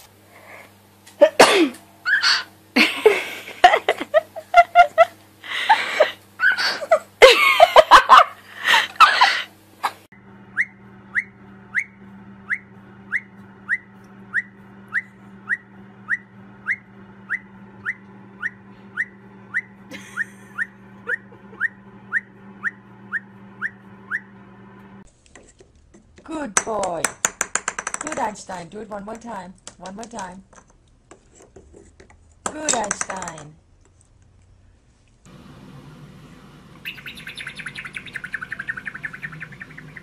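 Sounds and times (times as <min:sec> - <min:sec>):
steady low hum: 0:00.0 - 0:27.3, 0:27.9 - 0:40.0
parrot whistled chirps: 0:02.1 - 0:02.5, 0:10.5 - 0:19.7, 0:20.6 - 0:24.3, 0:36.8 - 0:40.0.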